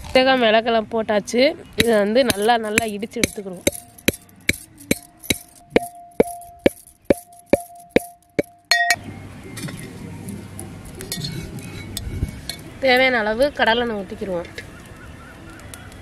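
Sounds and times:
pestle pounding in mortar: 0:01.8 - 0:08.9.

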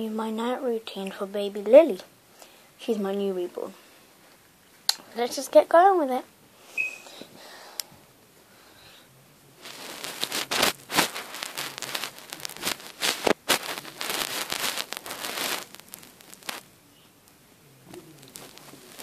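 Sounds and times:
fabric rustling against phone: 0:09.6 - 0:16.6.

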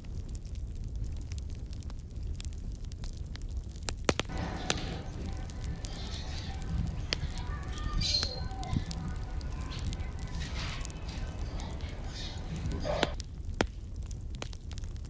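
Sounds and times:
faint distant voices: 0:04.3 - 0:13.2
wind buffeting microphone: 0:04.3 - 0:13.2.

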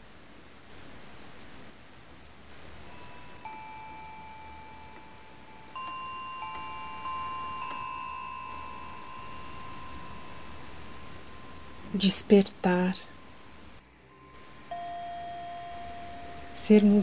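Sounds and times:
electronic keyboard bell notes: 0:02.9 - 0:12.2, 0:14.1 - 0:17.0.

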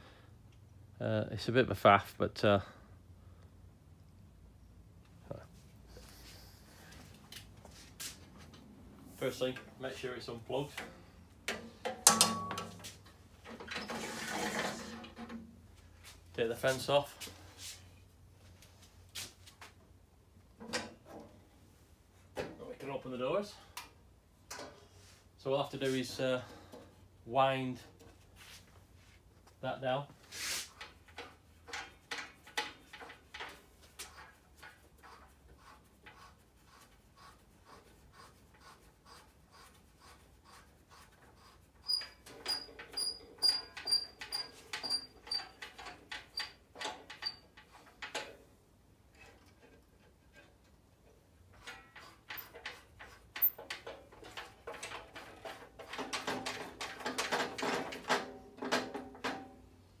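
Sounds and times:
short high squeaks: 0:41.8 - 0:45.6
saw rattling and knocking: 0:42.0 - 0:48.5, 0:51.5 - 0:59.6.

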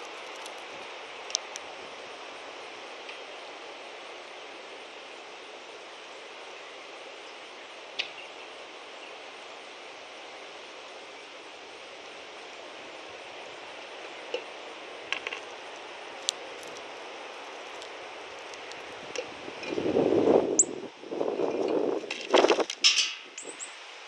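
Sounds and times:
bird pecking seeds on wood: 0:00.1 - 0:00.6.

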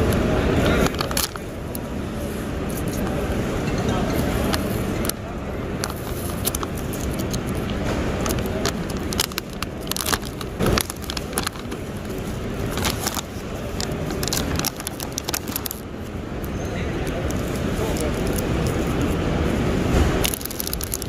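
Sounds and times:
plastic bag crinkling: 0:04.2 - 0:16.2, 0:20.2 - 0:21.0.

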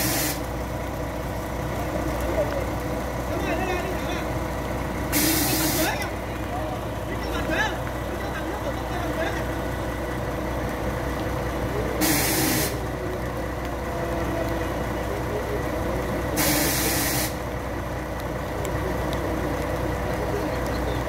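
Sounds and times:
air release hisses: 0:00.0 - 0:00.4, 0:05.2 - 0:05.9, 0:12.0 - 0:12.8, 0:16.4 - 0:17.4
crane engine running: 0:00.0 - 0:21.0.

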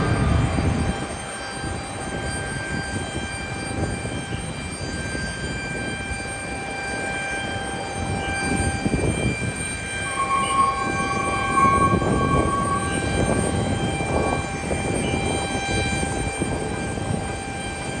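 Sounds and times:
jet engine rumble: 0:00.0 - 0:18.0
steady high-pitched whine: 0:00.0 - 0:18.0
brighter engine tone: 0:08.2 - 0:17.4.

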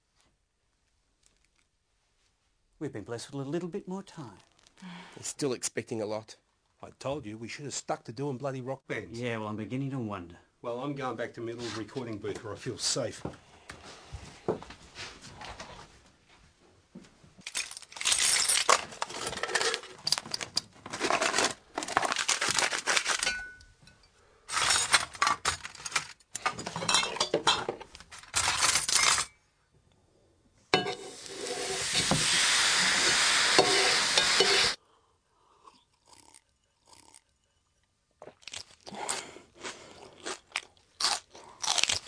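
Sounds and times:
hard objects clattering and clinking: 0:17.4 - 0:29.3
steady hiss: 0:30.9 - 0:34.8.

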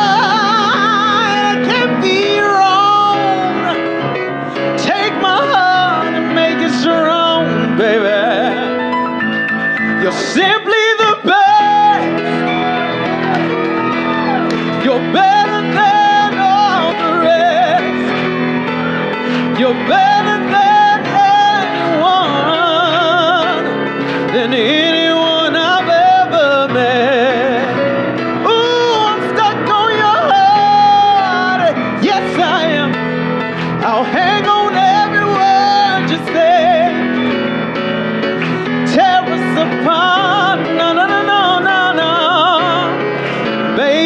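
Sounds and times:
person singing: 0:00.0 - 0:44.0
piano accompaniment: 0:00.0 - 0:44.0.

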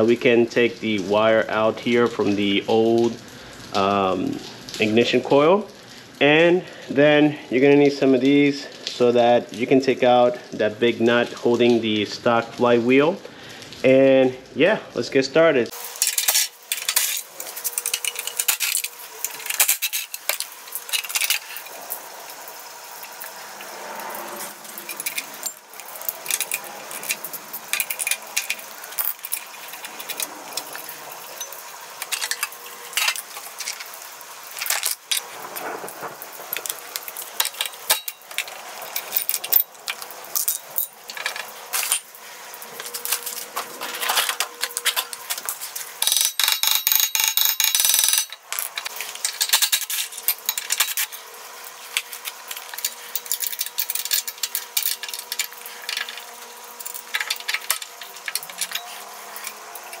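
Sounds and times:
metal tools clinking: 0:15.9 - 0:21.8, 0:24.6 - 0:35.3, 0:36.6 - 0:42.1, 0:42.8 - 0:51.3, 0:51.9 - 1:00.0.

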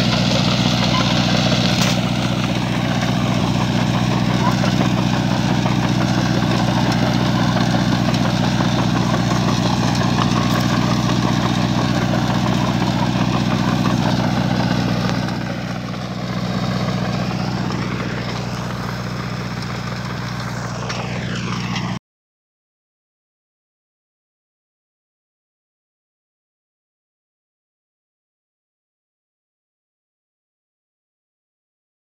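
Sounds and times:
tractor engine running: 0:00.0 - 0:22.0.

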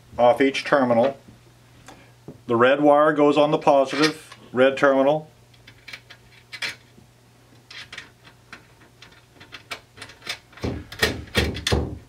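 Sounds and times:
knocks and rattles: 0:07.7 - 0:12.0.

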